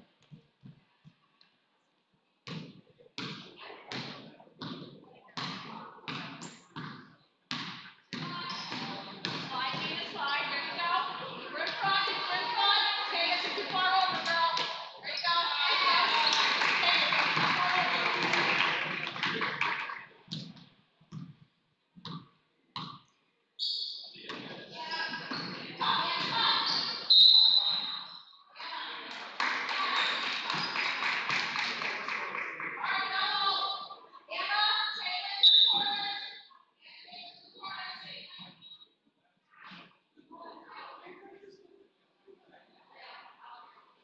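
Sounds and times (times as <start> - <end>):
basketball bouncing on a wooden floor: 2.5 - 10.0
gym crowd noise: 2.7 - 21.8, 24.0 - 44.0.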